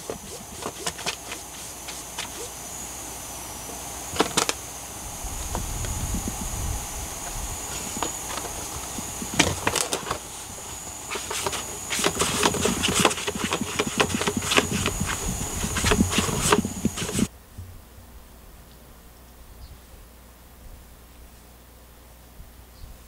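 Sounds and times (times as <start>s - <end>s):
cat scratching cardboard box: 0.0s - 3.0s, 3.6s - 4.6s, 7.2s - 17.3s.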